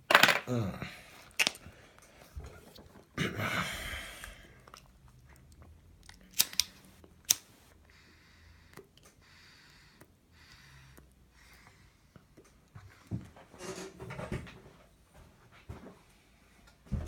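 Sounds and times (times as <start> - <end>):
sharp clicks of pipe handling: 6.0 - 7.5.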